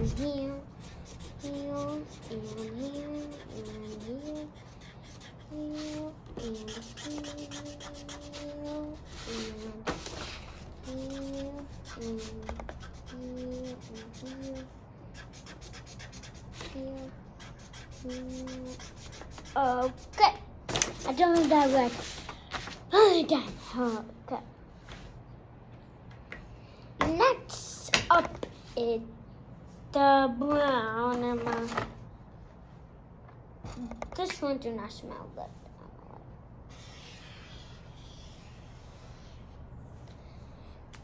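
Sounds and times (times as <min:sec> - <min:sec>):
marker scrubbing on paper: 0:00.5 - 0:22.8, 0:36.7 - 0:39.4.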